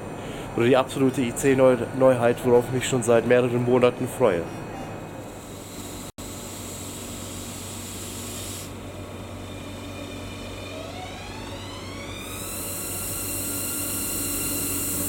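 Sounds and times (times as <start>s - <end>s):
traction motors whining: 7.0s - 15.0s.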